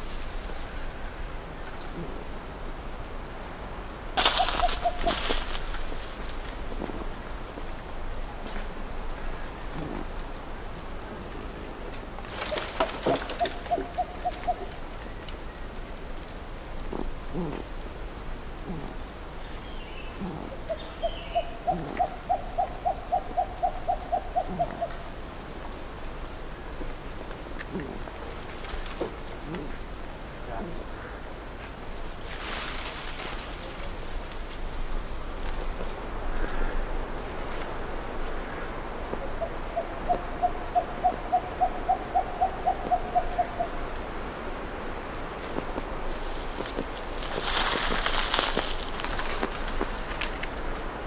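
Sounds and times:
sifaka soft low grunts: 16.9 - 17.7, 18.6 - 19.0.

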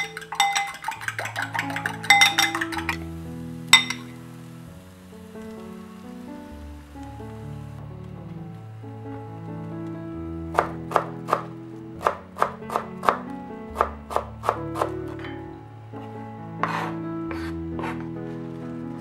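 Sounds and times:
soft background music: 0.0 - 19.0
knife chopping on wooden board: 10.6 - 13.2, 13.8 - 15.0, 16.6 - 18.0.

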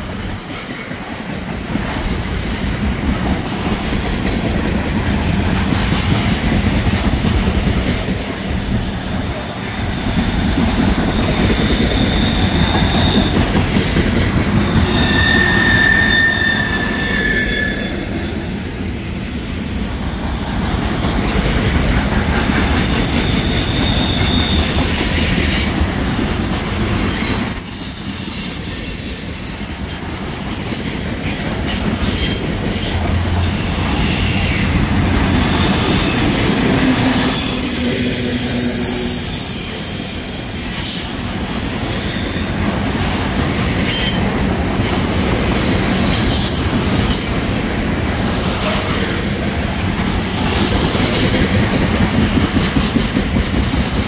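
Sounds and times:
steel wheels clattering on rails: 0.0 - 17.3, 20.6 - 54.0
high-pitched wheel squeals: 11.1 - 13.6, 14.7 - 18.8, 23.2 - 29.4.

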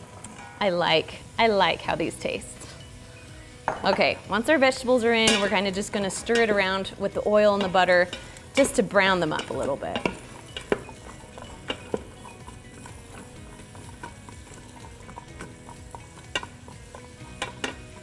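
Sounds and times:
vegetables sizzling in a pot: 0.0 - 18.0
spoon knocking against pot: 9.3 - 17.8.

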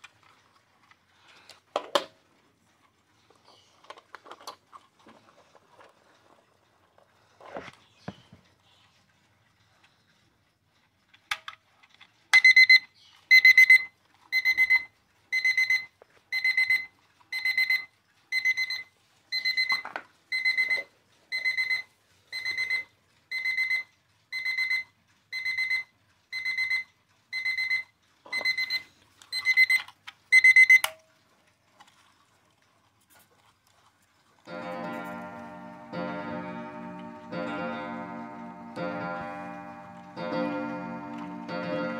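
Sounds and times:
alarm clock beeping: 12.3 - 30.9, 34.5 - 41.9.

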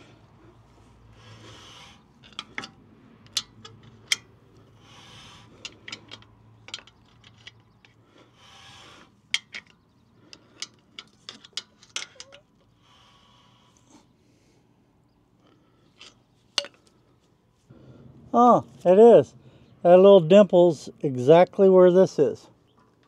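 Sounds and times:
person breathing: 16.8 - 18.3, 19.4 - 19.8.

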